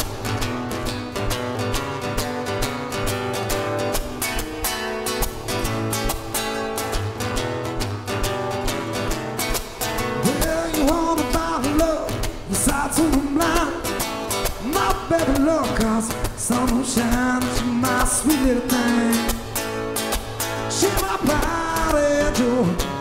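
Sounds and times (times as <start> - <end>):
acoustic guitars strummed: 0.0 - 23.0
man singing: 10.0 - 19.7, 20.6 - 23.0.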